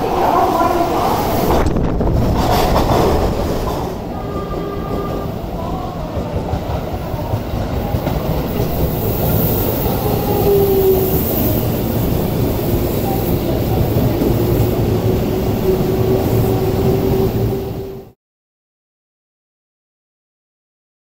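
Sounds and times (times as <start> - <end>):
train wheels rumbling on rails: 0.0 - 18.2.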